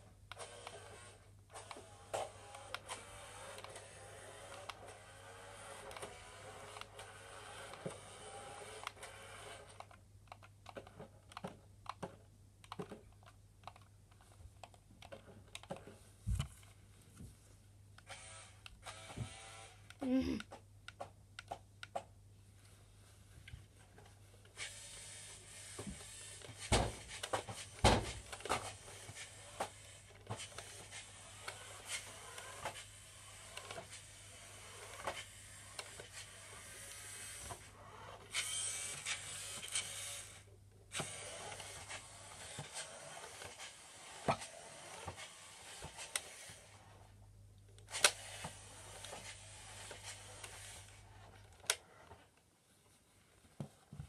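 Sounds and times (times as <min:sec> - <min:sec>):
toy car motor whirring: 0:00.3 - 0:10.0, 0:18.0 - 0:20.4, 0:24.5 - 0:47.1, 0:47.8 - 0:52.2.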